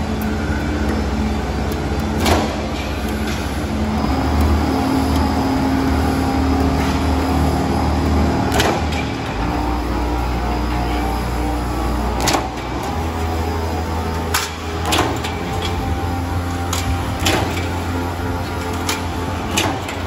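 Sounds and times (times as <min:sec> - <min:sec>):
roll forming machine humming: 0:00.0 - 0:20.0
sharp mechanical clacks: 0:12.1 - 0:13.4, 0:14.0 - 0:20.0.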